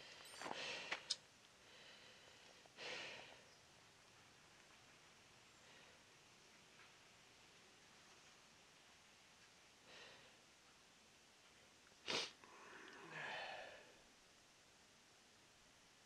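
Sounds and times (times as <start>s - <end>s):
breathy rush of air: 12.1s - 14.0s.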